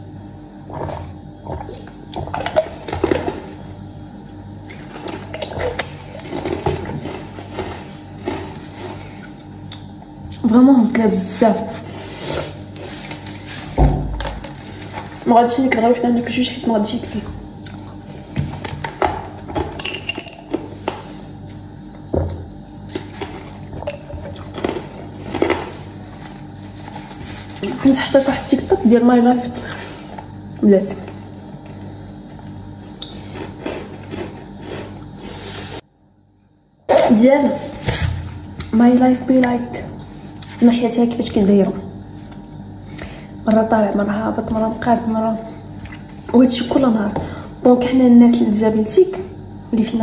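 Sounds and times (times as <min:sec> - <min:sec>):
faint steady hum: 0:00.0 - 0:50.0
drinking from a bottle: 0:00.7 - 0:03.4
chewing: 0:04.7 - 0:10.4, 0:32.4 - 0:35.3.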